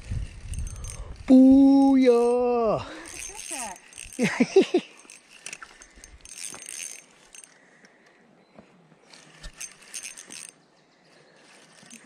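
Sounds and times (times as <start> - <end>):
fishing reel clicking and rattling: 0.0 - 8.0, 9.0 - 12.0.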